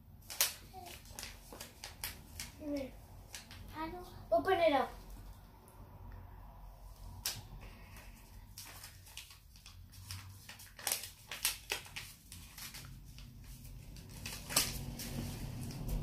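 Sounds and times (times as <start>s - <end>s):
paper rustling: 0.2s - 3.7s, 7.2s - 16.0s.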